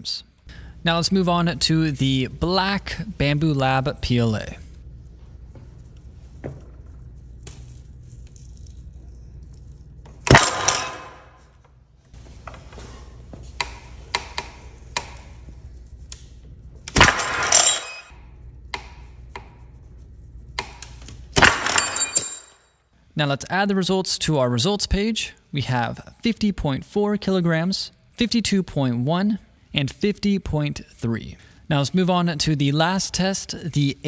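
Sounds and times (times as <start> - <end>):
low steady hum: 0.0 - 34.0
metallic rattle of hook and scale: 17.1 - 18.2.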